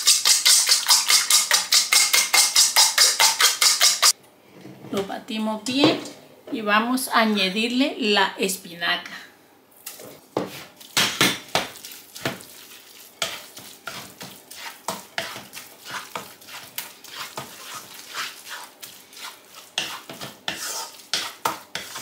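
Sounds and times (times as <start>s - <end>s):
spatula scraping a wok: 0.0s - 4.2s, 10.4s - 10.8s, 12.5s - 22.0s
wet squelching mix: 10.6s - 22.0s.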